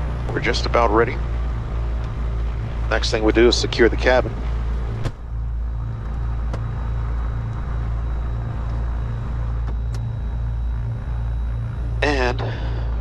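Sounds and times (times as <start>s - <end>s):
aircraft piston engines idling: 0.0s - 13.0s.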